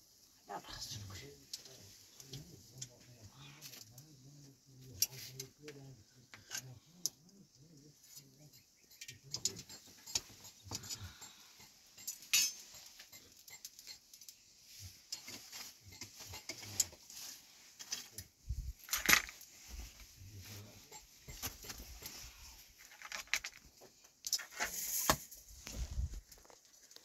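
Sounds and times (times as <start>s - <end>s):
metal skewers clinking and scraping: 8.0s - 25.4s.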